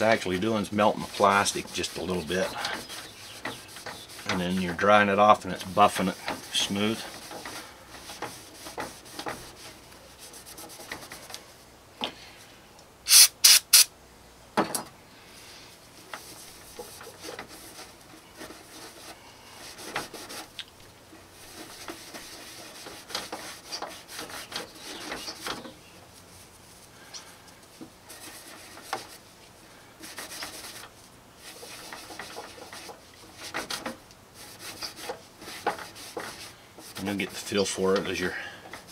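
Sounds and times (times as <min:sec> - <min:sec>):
spray hissing bursts: 0:13.1 - 0:13.9.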